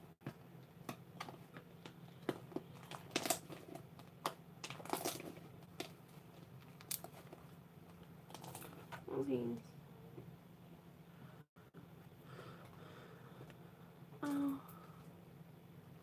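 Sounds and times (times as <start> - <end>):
faint steady hum: 0.0 - 16.0
handling noise clicks and crinkles: 0.6 - 9.1.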